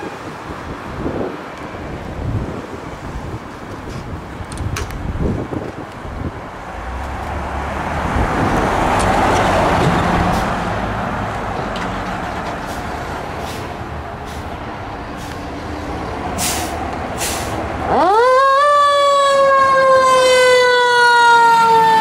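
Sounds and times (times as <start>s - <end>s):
pickup truck accelerating: 6.8s - 17.9s
air brakes hissing: 12.6s - 15.5s, 16.4s - 17.7s.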